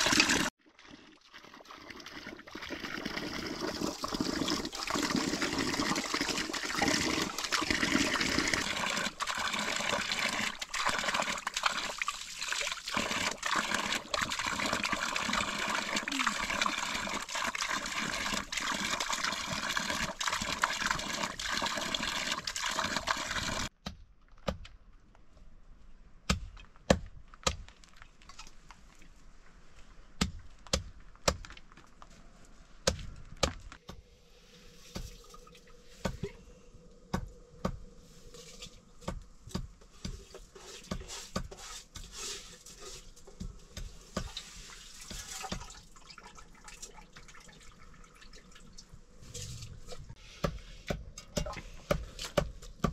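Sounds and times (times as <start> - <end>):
water pouring from pipe: 0.0 - 23.8, 34.6 - 36.4, 38.2 - 50.2.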